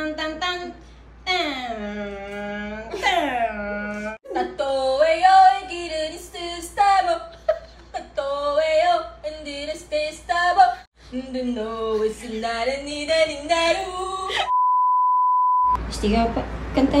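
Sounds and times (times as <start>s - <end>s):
woman singing into a fan: 4.3s - 14.5s.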